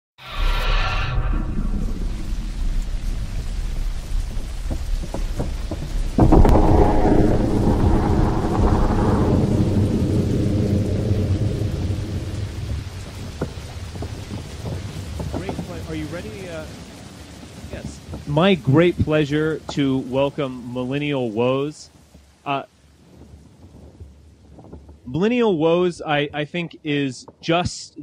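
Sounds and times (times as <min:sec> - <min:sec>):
steady rain: 0:00.2 - 0:28.0
thunder rumbling: 0:00.4 - 0:27.4
loud thunderclap: 0:01.0 - 0:20.7.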